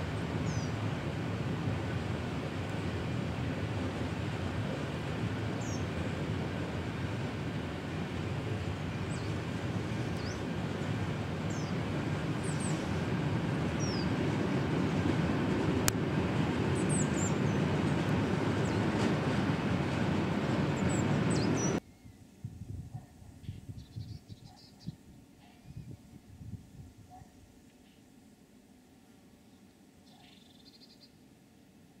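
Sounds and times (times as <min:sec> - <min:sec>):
train wheels rumbling on rails: 0:00.0 - 0:21.8.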